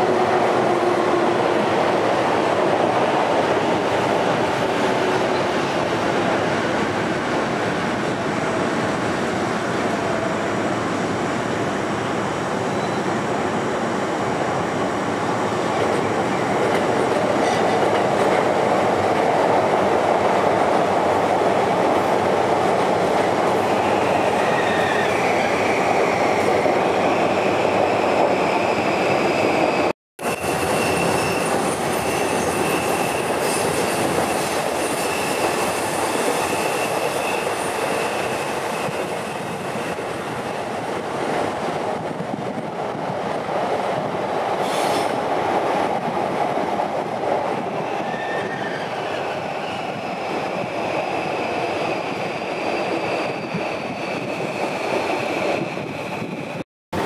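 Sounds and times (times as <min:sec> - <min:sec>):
train wheels rumbling on track: 0:00.0 - 0:57.0.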